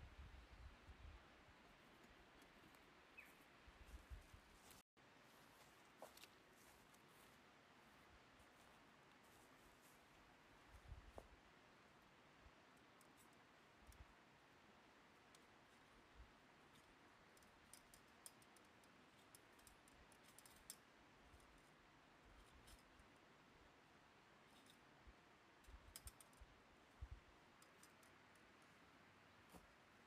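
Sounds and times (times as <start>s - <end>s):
faint metal clicks: 16.7s - 23.2s, 25.6s - 28.8s.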